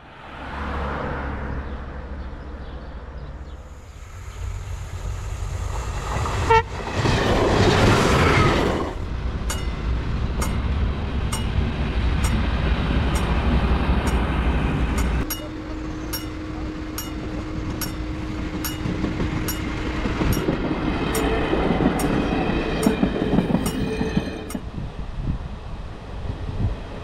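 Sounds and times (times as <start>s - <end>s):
diesel railcar rumbling: 0.2s - 27.0s
train rushing past: 3.6s - 27.0s
train horn toot: 6.4s - 6.8s, 15.2s - 20.4s
sharp rail clicks: 7.0s - 15.5s.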